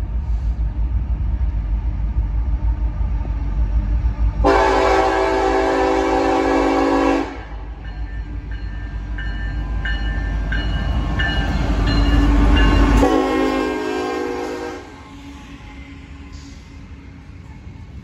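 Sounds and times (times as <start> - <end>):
diesel locomotives rumbling past: 0.0 - 18.0
locomotive bell ringing: 7.8 - 13.5.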